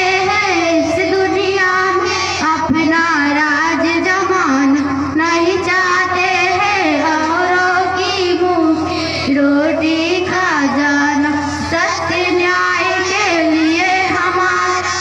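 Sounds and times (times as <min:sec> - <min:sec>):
girl singing into microphone: 0:00.0 - 0:15.0.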